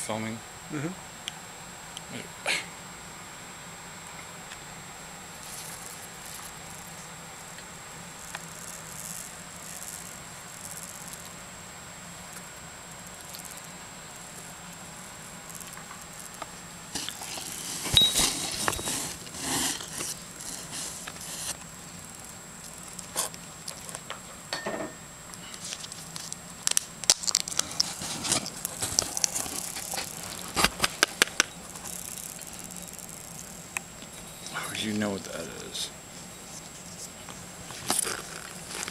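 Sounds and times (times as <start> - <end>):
hedgehog crunching and smacking: 12.3 - 13.7, 22.7 - 24.2, 25.6 - 33.5, 36.7 - 38.9.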